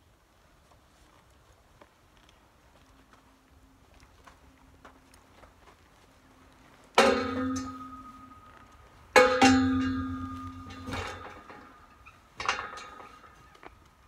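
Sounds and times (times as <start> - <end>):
metal pipe panel clanging: 7.0 - 13.7.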